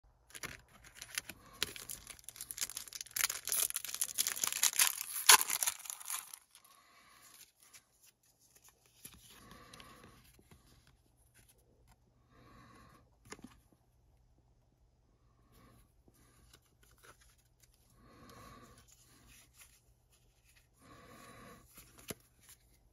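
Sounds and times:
cards rustling: 0.3s - 6.6s
foil wrapper crinkling and tearing: 0.3s - 6.6s.

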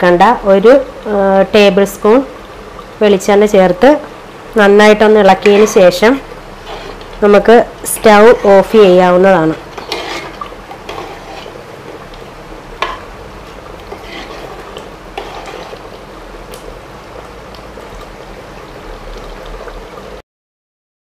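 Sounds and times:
thick curry sloshing: 9.6s - 12.1s, 13.7s - 15.9s.

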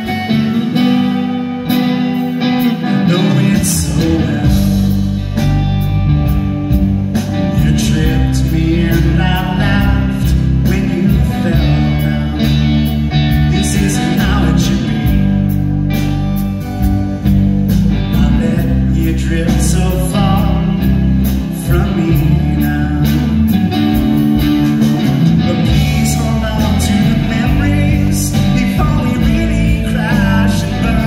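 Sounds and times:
live rock band playing: 0.0s - 31.0s
male lead vocal: 2.7s - 5.5s, 7.3s - 15.5s, 18.0s - 24.1s, 24.8s - 31.0s.

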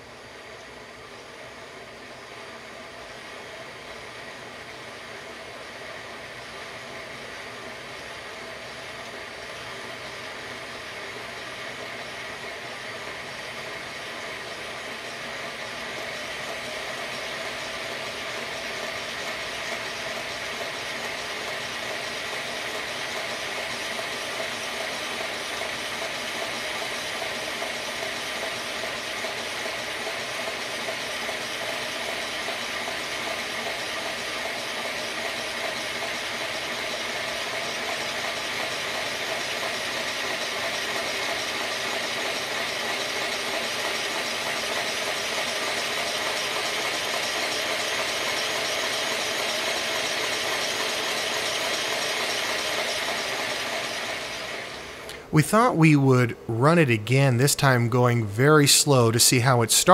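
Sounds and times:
model locomotive motor whirring: 0.1s - 55.3s.

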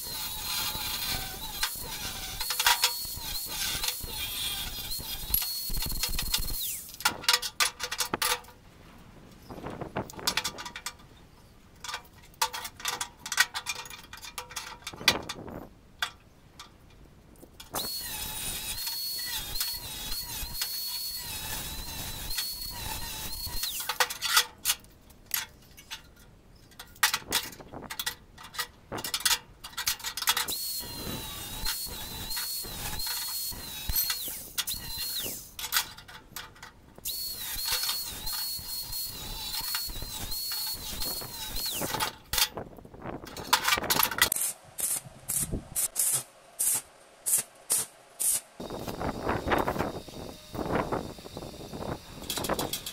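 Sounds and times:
angle grinder cutting steel: 0.0s - 7.0s, 17.8s - 24.2s, 30.5s - 35.6s, 37.0s - 42.3s, 43.4s - 52.9s
steel pieces clanking: 0.0s - 8.5s, 17.6s - 52.9s.

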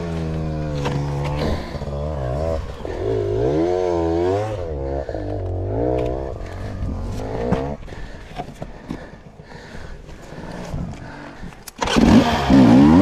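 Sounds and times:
motorcycle engine revving: 0.0s - 7.9s, 11.8s - 13.0s.

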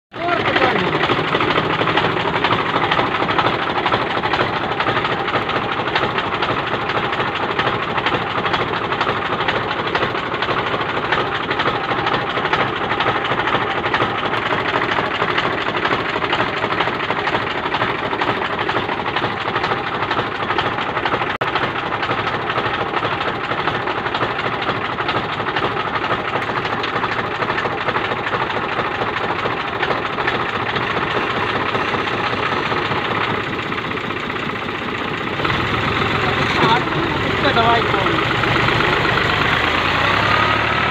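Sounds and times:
spray pump knocking clatter: 0.1s - 40.9s
tractor engine running: 0.1s - 40.9s.

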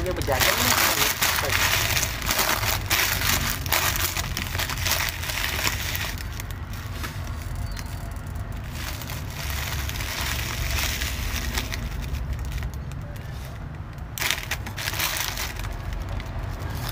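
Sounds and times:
low steady rumble: 0.0s - 16.9s
plastic bag crinkling: 0.0s - 16.9s.

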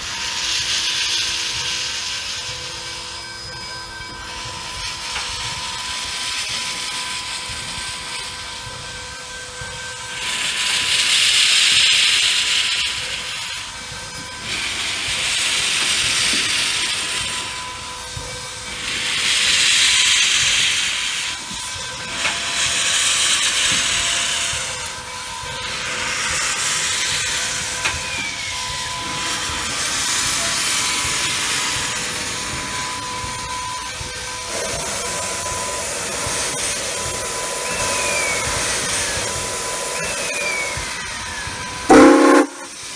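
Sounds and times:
steam hissing bursts: 0.0s - 42.9s
steady high tone: 41.9s - 42.8s.

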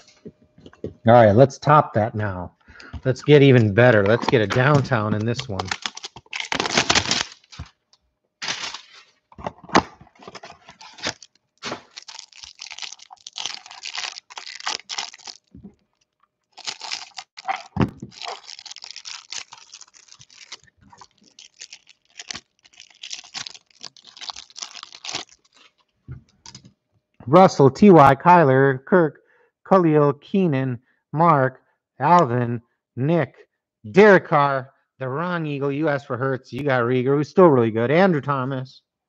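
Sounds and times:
plastic wrapper crinkling and tearing: 3.4s - 7.8s, 8.4s - 26.6s.

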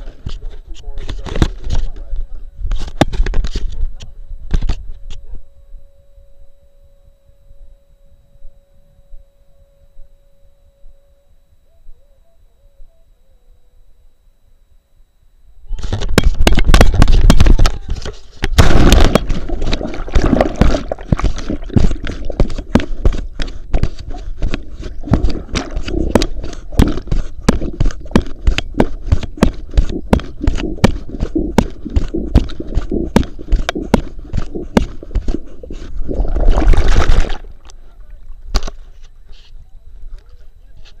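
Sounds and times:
churning water: 18.6s - 23.2s, 36.0s - 37.7s
legs paddling with slaps and knocks: 19.2s - 37.4s
dog splashing into water: 36.1s - 37.5s.

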